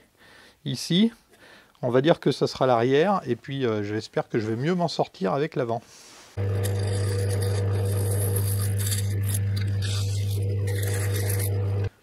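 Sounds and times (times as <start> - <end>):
turning tool scraping wood: 6.4 - 12.0
wood lathe humming: 6.4 - 12.0.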